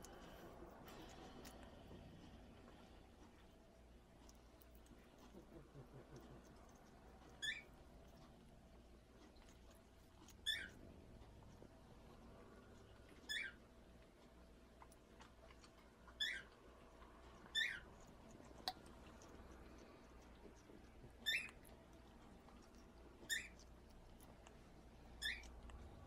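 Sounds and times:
parrot squeaking: 7.4s - 7.8s, 10.3s - 10.8s, 13.2s - 13.6s, 16.1s - 16.6s, 17.5s - 17.9s, 21.2s - 21.6s, 23.2s - 23.6s, 25.1s - 25.6s.

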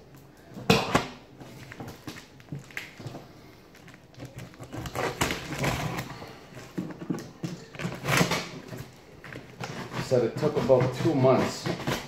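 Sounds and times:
cardboard tearing and rustling: 3.8s - 12.0s.

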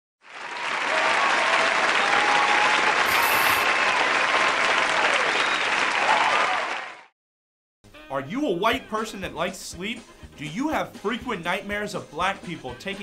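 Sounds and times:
audience applause: 0.2s - 7.1s.

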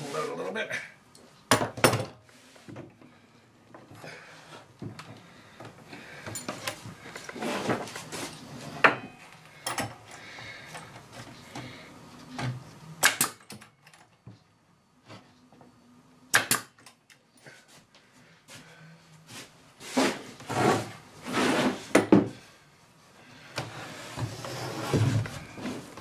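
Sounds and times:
knocks and rustling of handling: 4.6s - 12.7s
pneumatic nailer shots: 13.0s - 13.6s, 16.3s - 16.9s.

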